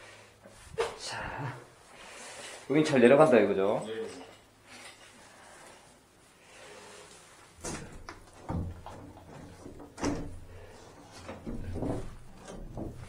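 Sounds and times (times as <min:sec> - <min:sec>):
panel knocking and scraping frame: 0:11.0 - 0:13.0.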